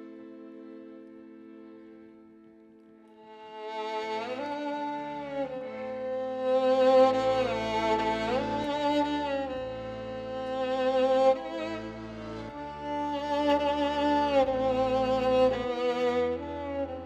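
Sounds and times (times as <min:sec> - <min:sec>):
violin playing slow melody: 0:00.0 - 0:17.0
low sustained bass notes: 0:05.1 - 0:17.0.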